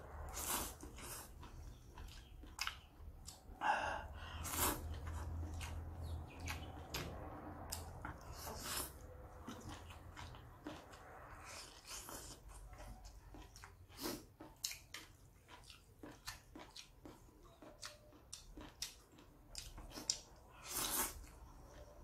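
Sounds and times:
chewing clicks: 0.8s - 3.5s, 9.4s - 20.4s
person slurping noodles: 4.2s - 5.0s.

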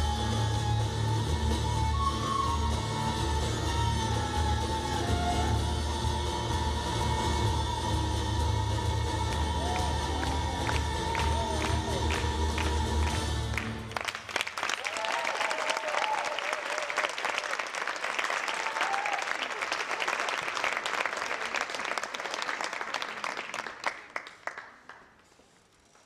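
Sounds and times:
audience applauding: 9.3s - 25.3s.

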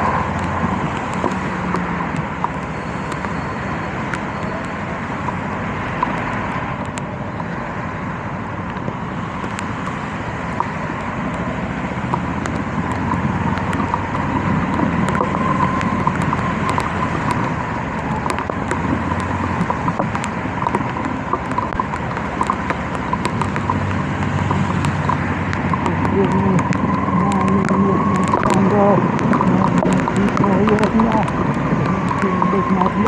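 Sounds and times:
road and wind noise: 0.0s - 33.0s
sharp irregular ticks: 8.7s - 33.0s.

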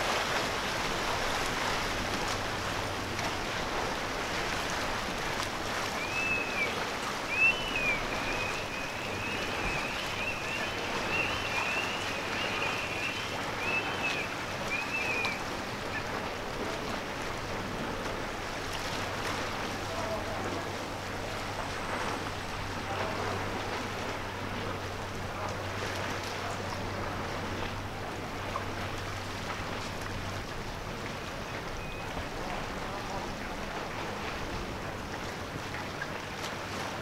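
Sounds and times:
water noise: 0.0s - 37.0s
wind: 0.0s - 37.0s.

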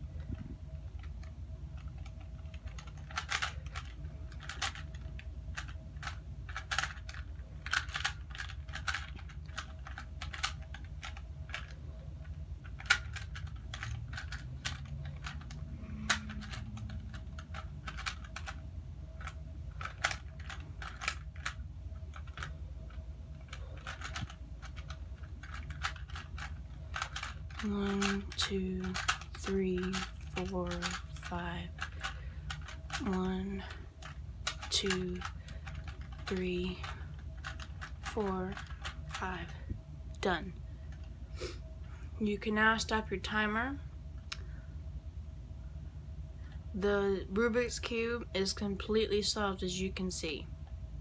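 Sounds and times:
puzzle cube clicking: 0.9s - 33.4s, 34.0s - 39.4s.

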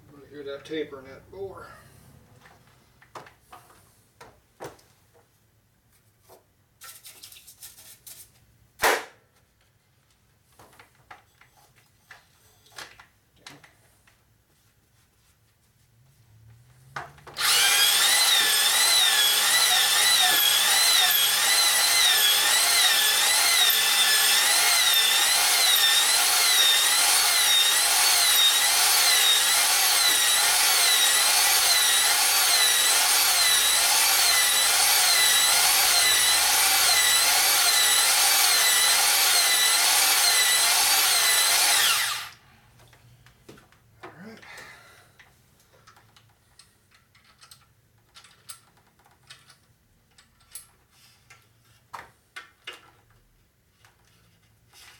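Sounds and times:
electric drill motor whine: 17.4s - 42.4s.

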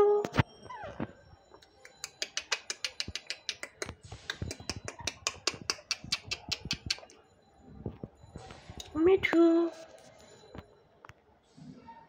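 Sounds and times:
parakeet clicking: 1.7s - 7.2s.

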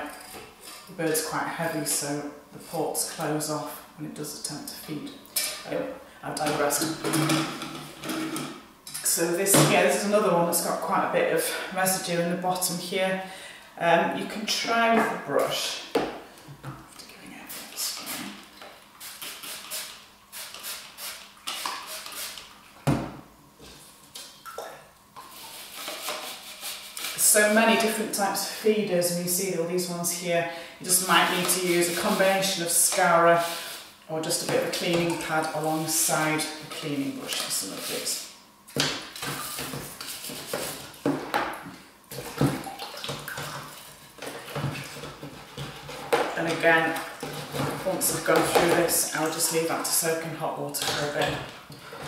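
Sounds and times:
brush scrubbing plastic feeder: 25.2s - 27.8s, 30.9s - 38.2s, 39.2s - 41.0s
water sloshing and splashing: 42.1s - 49.6s.

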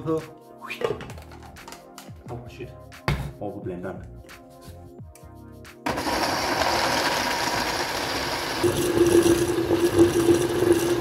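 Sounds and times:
blender churning: 5.8s - 11.0s.

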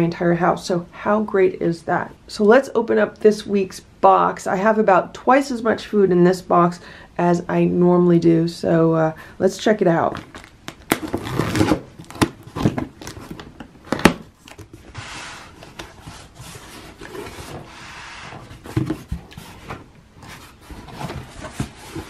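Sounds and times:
packing tape being slit: 10.2s - 14.8s
cardboard clicks and knocks: 10.2s - 15.0s, 18.4s - 22.0s
rustling scrape of cardboard: 11.0s - 13.5s, 14.4s - 22.0s.

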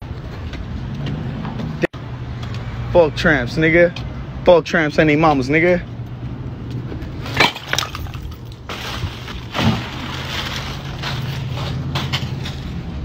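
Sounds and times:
low traffic hum: 0.0s - 13.0s
buckets thudding over: 7.2s - 12.3s
cellophane rustling and scraping: 8.7s - 12.6s.

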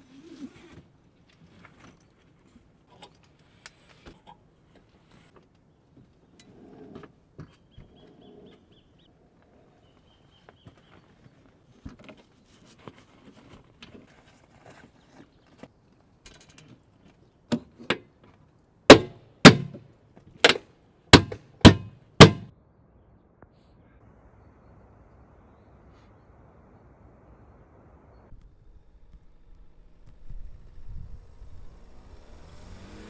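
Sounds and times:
sharp ringing knocks: 18.9s - 19.8s, 21.2s - 22.5s.

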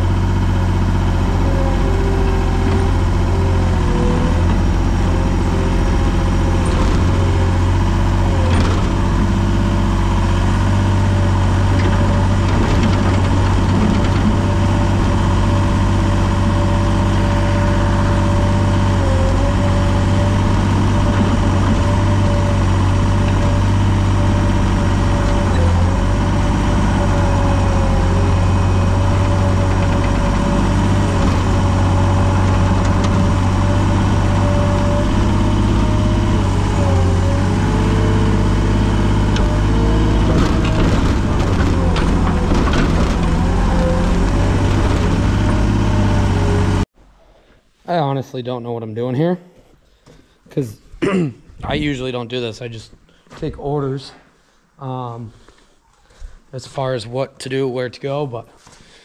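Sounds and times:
skid steer engine running: 0.0s - 46.9s.

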